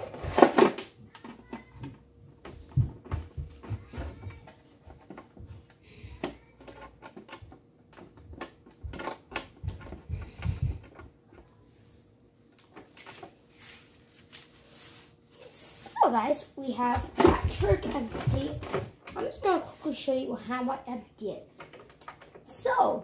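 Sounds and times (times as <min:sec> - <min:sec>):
paper and cardboard rustling: 0:12.6 - 0:16.1, 0:16.8 - 0:20.0.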